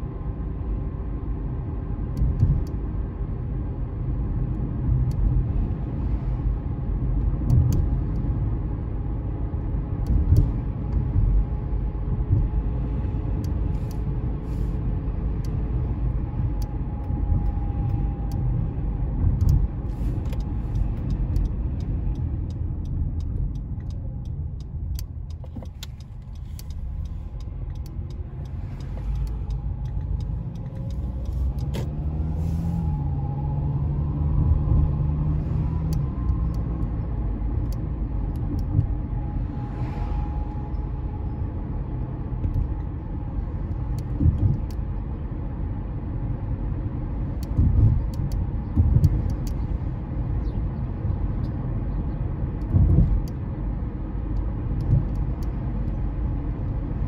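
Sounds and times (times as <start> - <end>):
road and tyre rumble: 0.0 - 57.0.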